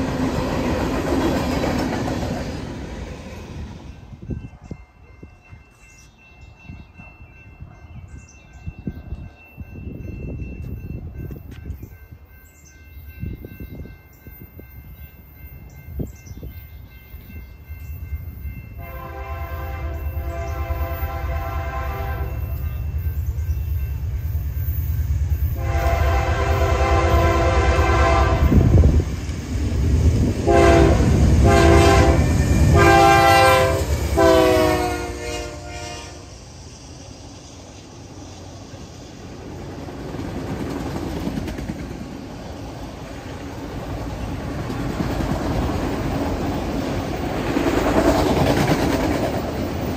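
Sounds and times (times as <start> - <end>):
train rumble: 0.0 - 49.9
locomotive air horn blasts: 18.8 - 22.5, 25.6 - 28.8, 30.4 - 36.4.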